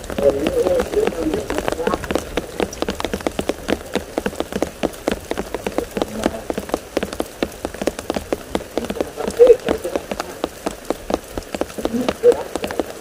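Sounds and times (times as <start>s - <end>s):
light rain drops: 0.0s - 13.0s.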